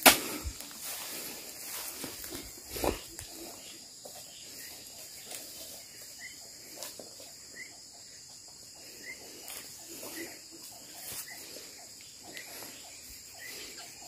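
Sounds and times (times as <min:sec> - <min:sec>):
high-pitched insect chorus: 0:00.0 - 0:14.0.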